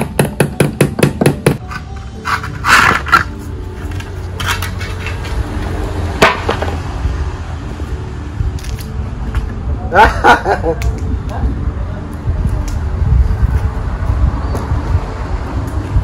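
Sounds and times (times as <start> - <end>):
hammer striking bamboo: 0.0 - 1.7, 6.2 - 6.8
scrape: 1.7 - 5.4.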